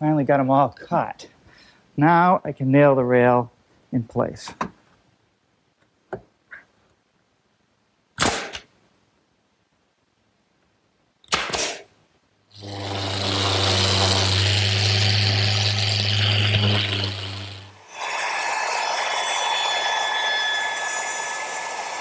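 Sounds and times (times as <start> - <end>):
pneumatic nailer shots: 8.2 - 8.7, 11.2 - 11.9, 12.6 - 18.1
machine humming and hissing: 12.5 - 22.0.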